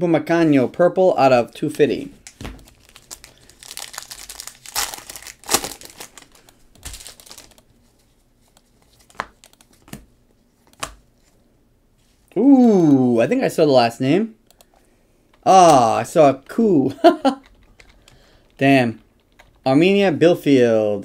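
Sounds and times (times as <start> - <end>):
wrapper crinkling and tearing: 2.2 - 7.6.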